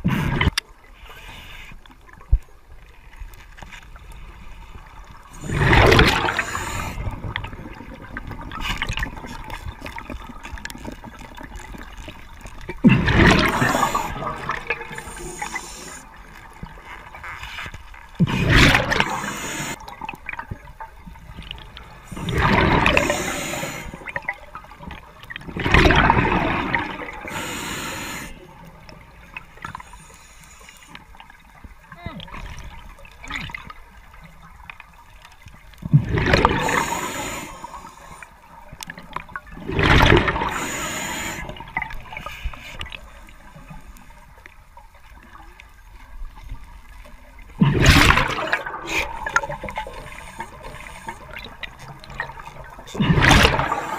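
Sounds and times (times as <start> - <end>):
faint water hiss: 0.0 - 53.9
exhaled bubbles rushing underwater: 4.0 - 17.2, 18.1 - 30.0, 32.3 - 44.0, 45.0 - 53.9.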